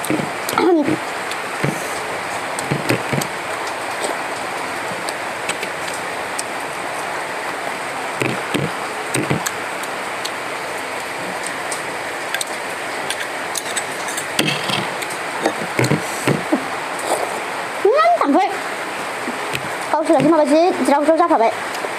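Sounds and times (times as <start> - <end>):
steady background hiss: 0.0 - 21.9.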